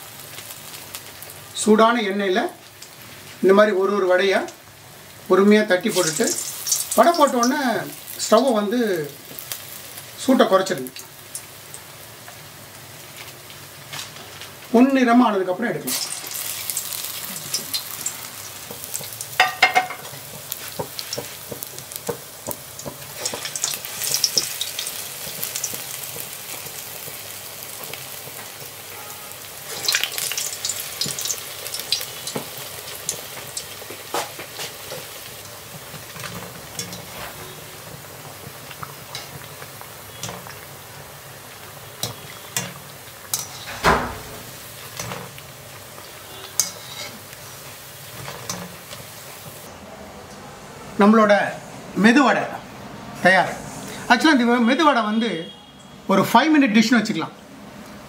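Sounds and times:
fritters sizzling in hot oil: 0:00.0 - 0:49.7, 0:53.2 - 0:54.9.

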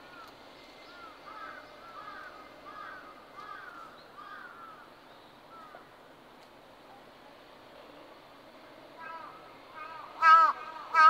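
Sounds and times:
crow cawing: 0:00.9 - 0:04.9, 0:09.0 - 0:11.0.

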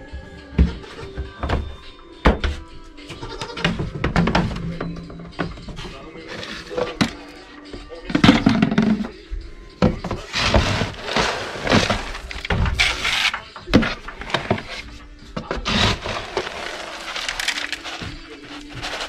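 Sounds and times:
plastic scoop scooping feed pellets: 0:10.3 - 0:13.3, 0:15.6 - 0:19.0.

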